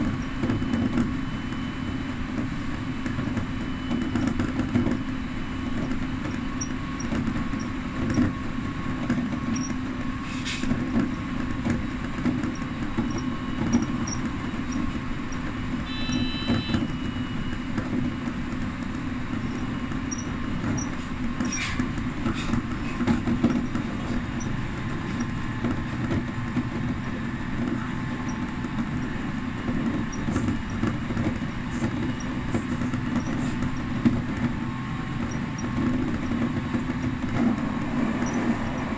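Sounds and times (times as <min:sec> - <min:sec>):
train wheels rumbling on rail: 0:00.0 - 0:38.9
brief high tone: 0:15.9 - 0:17.4.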